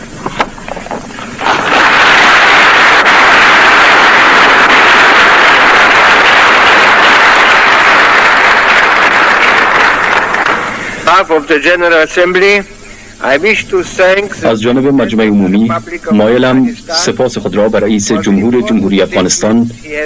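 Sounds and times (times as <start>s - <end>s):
audience applauding: 1.4s - 11.1s.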